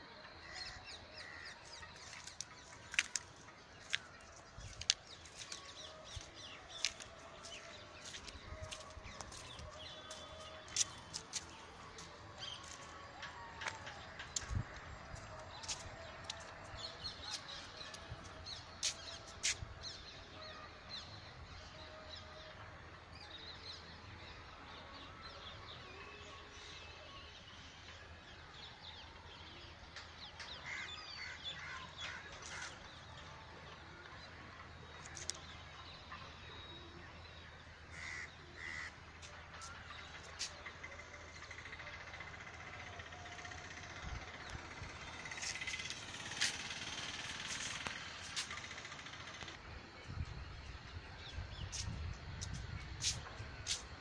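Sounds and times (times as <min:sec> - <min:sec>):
birds calling and chirping: 0:34.9 - 0:49.6.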